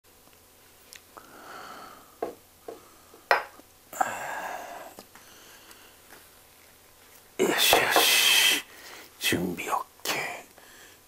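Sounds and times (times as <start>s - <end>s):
glass bottle clicks and knocks: 3.3s - 3.5s.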